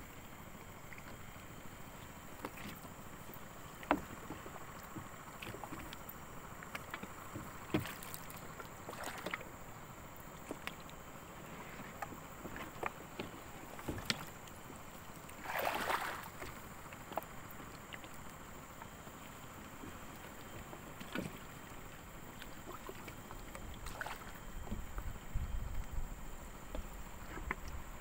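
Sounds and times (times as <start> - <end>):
water sloshing and lapping: 0.0 - 28.0
loud water splash: 15.4 - 16.3.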